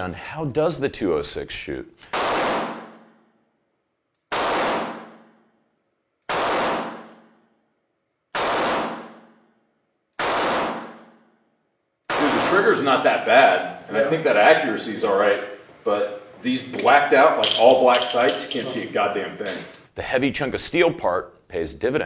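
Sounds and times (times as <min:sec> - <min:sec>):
revolver shots indoors: 0:02.0 - 0:12.7.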